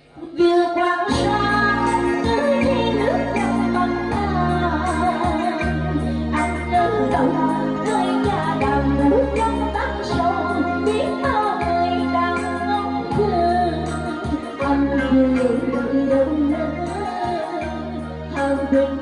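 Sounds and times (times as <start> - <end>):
amplified backing track: 0.0 - 19.0
woman singing through microphone: 0.0 - 19.0.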